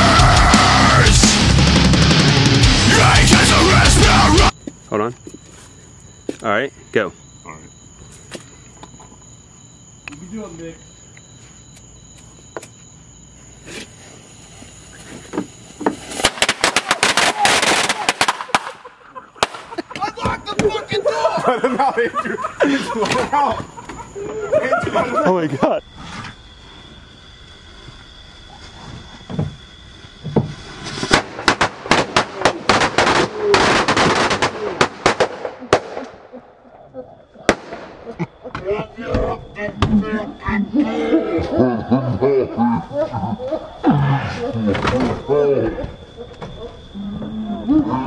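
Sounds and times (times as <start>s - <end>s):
crickets chirping: 0.0s - 48.0s
firecrackers popping and banging: 15.8s - 20.1s, 30.4s - 36.2s, 37.5s - 38.0s.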